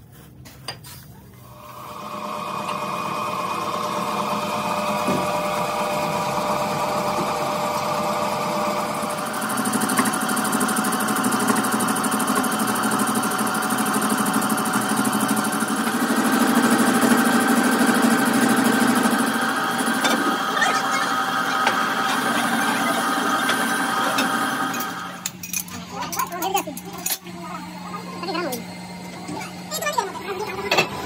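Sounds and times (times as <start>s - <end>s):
lathe machine hum: 1.5s - 25.3s.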